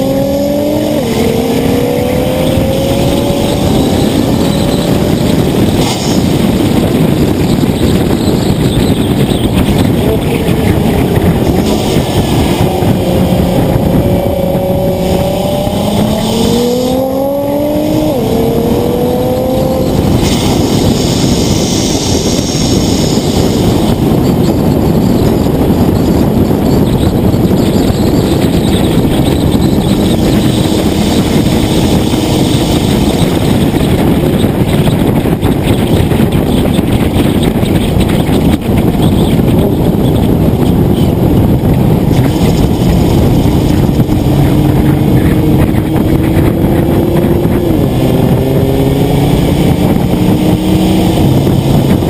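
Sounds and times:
car engine revving: 0.0 - 52.0
road and wind noise: 0.0 - 52.0.

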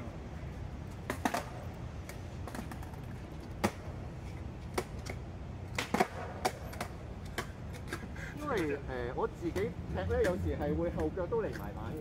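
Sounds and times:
skateboard clacking on wet pavement: 1.0 - 4.0, 4.7 - 8.8.

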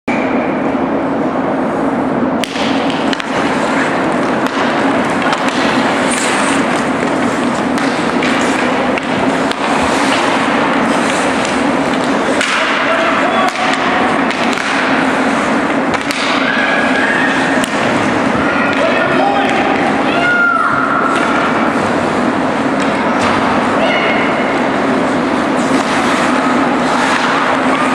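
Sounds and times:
crowd voices: 0.2 - 27.9
sticks and puck knocking: 2.4 - 15.0, 15.7 - 16.5
skates scraping on ice: 2.8 - 20.0, 24.5 - 27.9.

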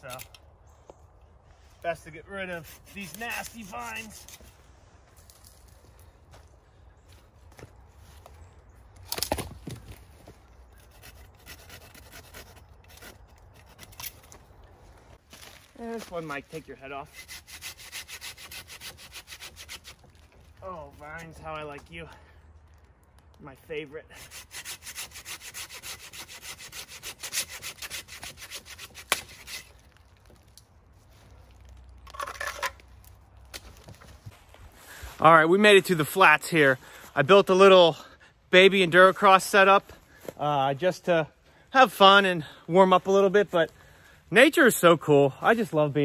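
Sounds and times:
brush rustling: 1.4 - 8.5, 9.1 - 22.3
hand saw cutting woody vine: 2.4 - 4.5, 10.8 - 14.2, 17.0 - 20.1, 24.1 - 29.8
dry vines crackling and snapping: 9.0 - 10.1, 19.4 - 23.8, 29.0 - 34.5.

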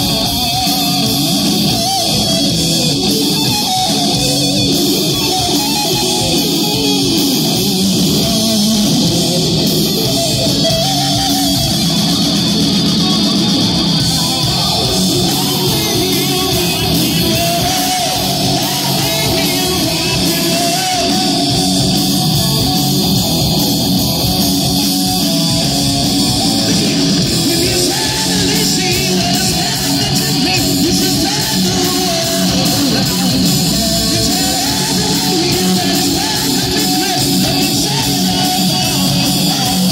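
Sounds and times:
person singing: 0.0 - 22.8, 25.4 - 39.9
distorted electric guitars: 0.0 - 39.9.

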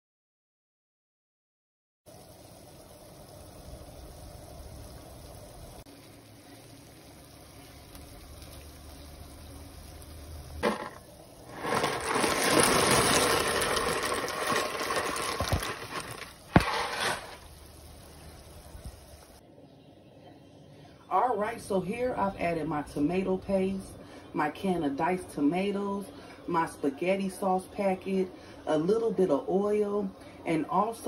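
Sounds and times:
dry pasta pouring into boiling water: 5.3 - 19.2.

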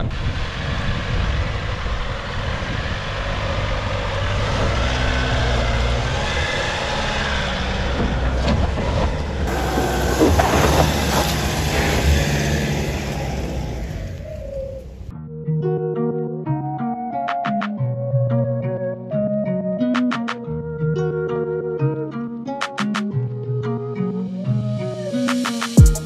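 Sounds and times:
vehicle engine under load: 0.0 - 15.1
tyres crackling on loose dirt: 5.6 - 15.0.

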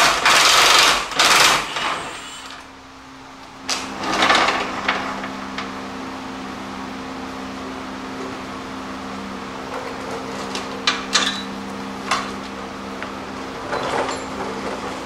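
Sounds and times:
metal clanks: 10.4 - 11.5, 13.6 - 14.8
rattle of handling metal parts: 10.4 - 11.5, 13.6 - 14.9.

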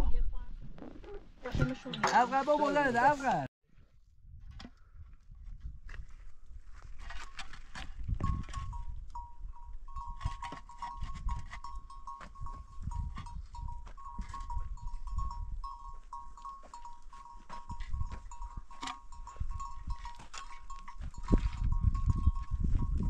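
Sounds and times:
low rumble of wind: 3.8 - 23.0
concrete blocks knocking and scraping: 6.8 - 9.2, 9.9 - 23.0.

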